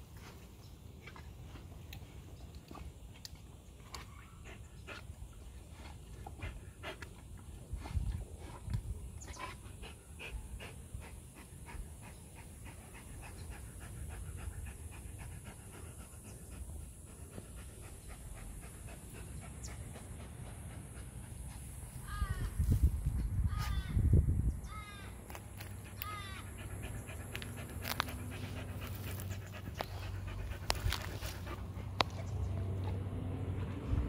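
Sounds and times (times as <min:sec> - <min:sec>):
dog panting: 0:04.2 - 0:22.0, 0:25.6 - 0:34.0.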